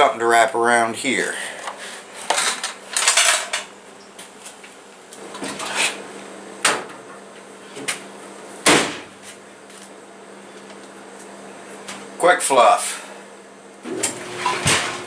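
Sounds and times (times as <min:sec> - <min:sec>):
dryer door thump: 0:08.6 - 0:09.1.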